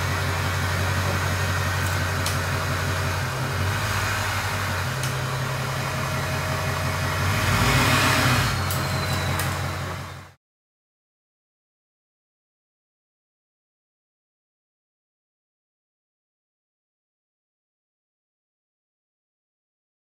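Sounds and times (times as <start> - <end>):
diesel engine running: 0.0 - 10.4.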